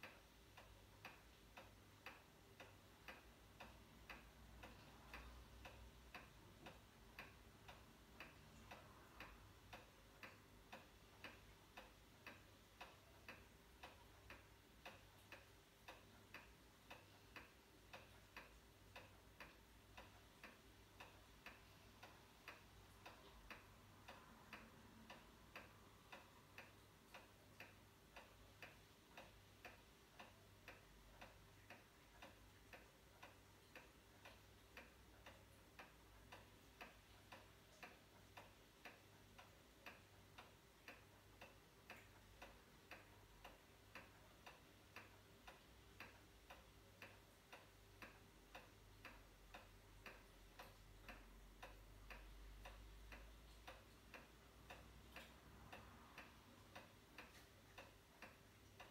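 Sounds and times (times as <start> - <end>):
wall clock ticking: 0.0 - 58.9.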